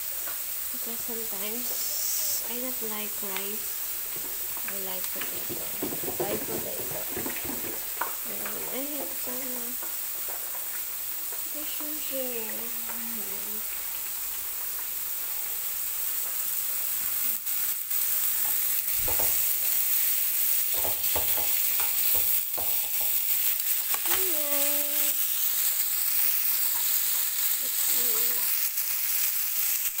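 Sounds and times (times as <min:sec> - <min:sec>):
meat sizzling in oil: 0:00.0 - 0:30.0
tongs knocking against pan: 0:20.7 - 0:23.2.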